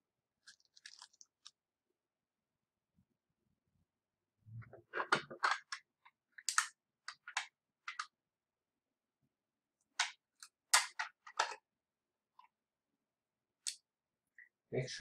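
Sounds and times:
plastic tubes clicking and knocking: 0:04.6 - 0:08.1, 0:09.9 - 0:11.6.

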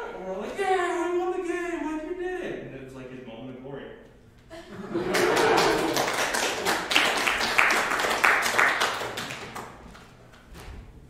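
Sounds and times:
audience applauding: 0:04.9 - 0:10.2.

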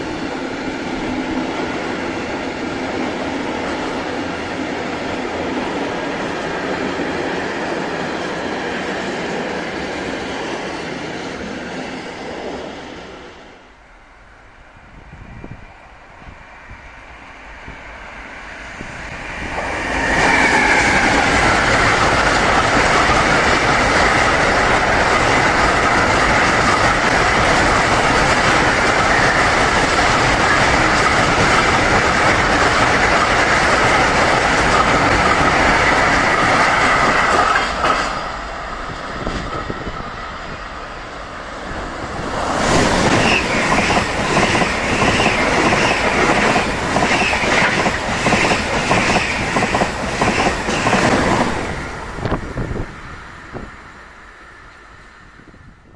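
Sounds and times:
high-speed train passing: 0:00.0 - 0:55.9
freight train wheels clattering: 0:42.0 - 0:52.4.

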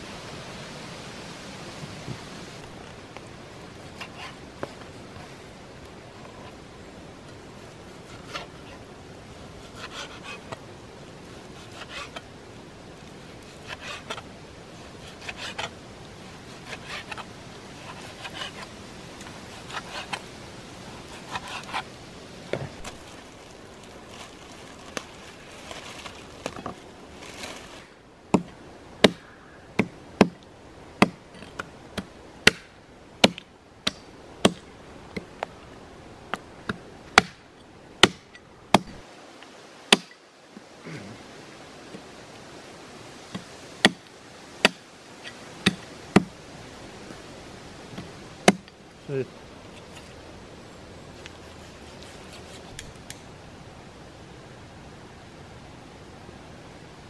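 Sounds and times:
handling noises: 0:21.1 - 0:28.6.

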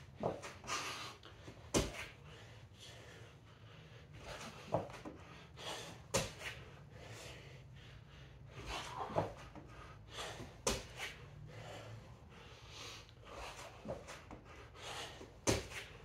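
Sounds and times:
man breathing hard: 0:00.0 - 0:16.0.

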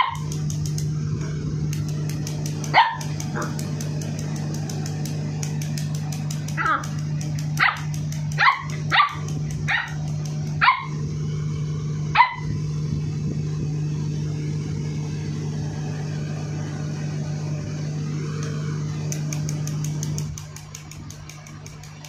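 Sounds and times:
steady low hum: 0:00.0 - 0:22.0
puppy yipping: 0:12.2 - 0:12.5.

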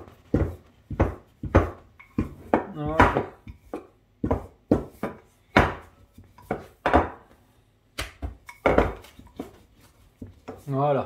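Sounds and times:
rolling pin knocking on surface: 0:00.0 - 0:07.2, 0:08.2 - 0:09.6.

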